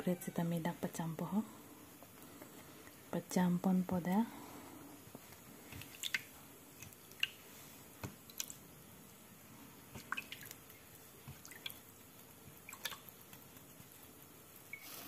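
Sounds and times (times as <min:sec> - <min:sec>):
water dripping and splashing: 0:05.6 - 0:07.4, 0:08.1 - 0:08.6, 0:09.9 - 0:14.8.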